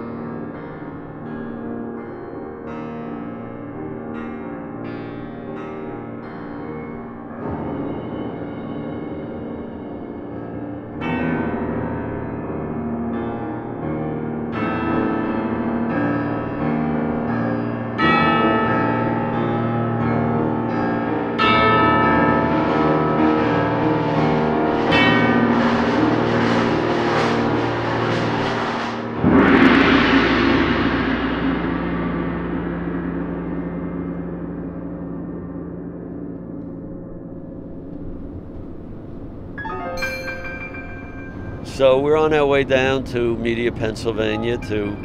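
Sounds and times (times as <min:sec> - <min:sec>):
gong ringing: 0:16.8 - 0:45.0
tubular bells ringing chords: 0:39.6 - 0:45.0.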